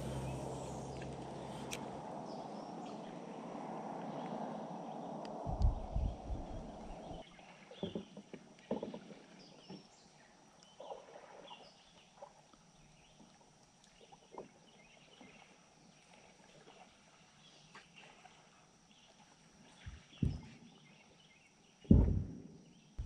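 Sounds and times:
low rumble: 0:00.0 - 0:07.2.

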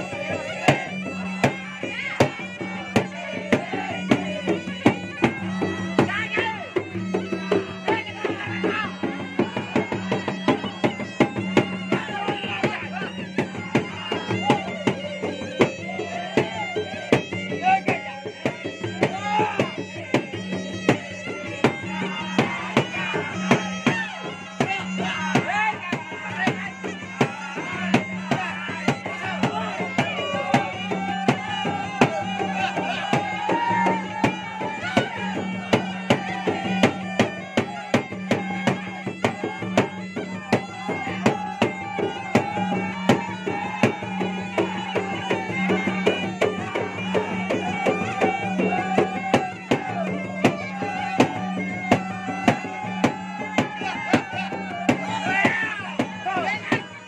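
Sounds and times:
drums beaten in fast rhythm: 0:00.0 - 0:57.0
reedy shawm melody: 0:00.0 - 0:57.0.

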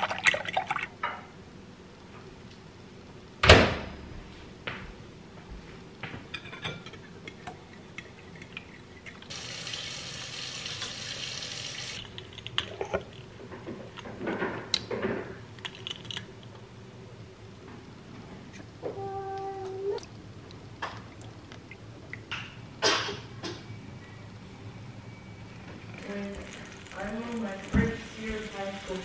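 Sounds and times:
dishes and spoons clinking: 0:06.3 - 0:09.2
steady hiss: 0:26.0 - 0:29.0.

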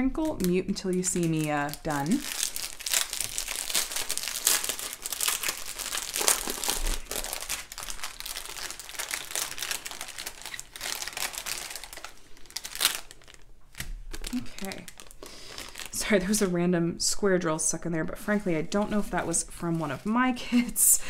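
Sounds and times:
plastic bag crinkling: 0:00.0 - 0:16.6.

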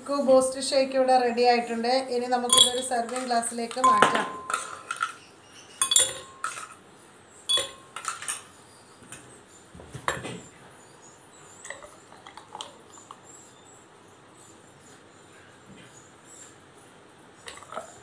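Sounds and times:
glassware clinking and knocking: 0:02.5 - 0:05.2, 0:05.8 - 0:06.8, 0:07.5 - 0:08.5.

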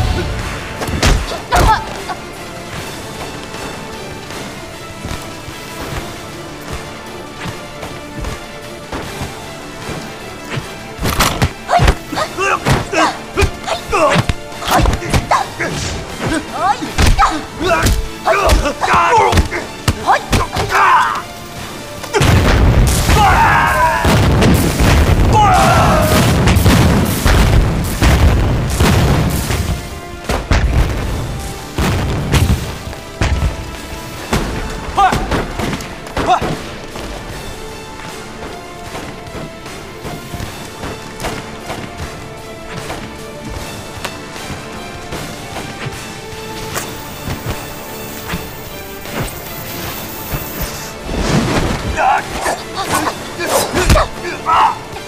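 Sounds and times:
men shouting and grunting: 0:00.0 - 0:02.8, 0:10.4 - 0:22.4, 0:23.0 - 0:24.4, 0:25.2 - 0:26.5, 0:34.8 - 0:36.8, 0:51.7 - 0:55.0
film score music: 0:00.0 - 0:55.0
explosion booms and thuds: 0:22.2 - 0:35.7.

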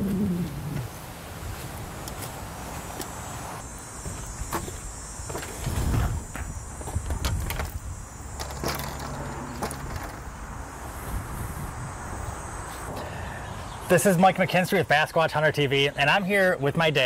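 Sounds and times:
fishing rods knocking and clattering: 0:08.4 - 0:10.3.

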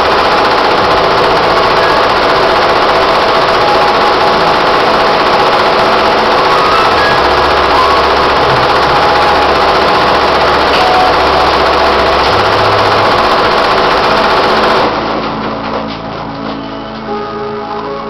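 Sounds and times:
embroidery machine stitching: 0:00.0 - 0:15.6
quiet music: 0:00.7 - 0:18.0.

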